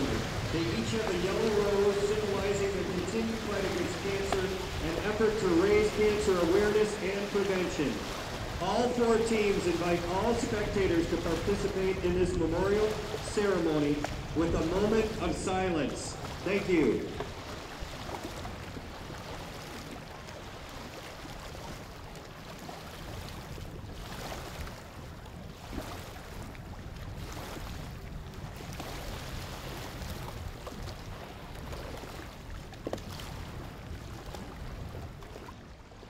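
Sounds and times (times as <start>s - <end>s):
lapping water: 0.0s - 35.6s
wind: 0.0s - 36.0s.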